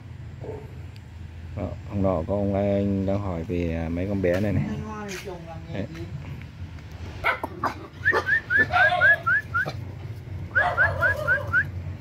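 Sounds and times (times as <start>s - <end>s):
puppies whimpering: 7.3s - 9.8s, 10.5s - 11.8s.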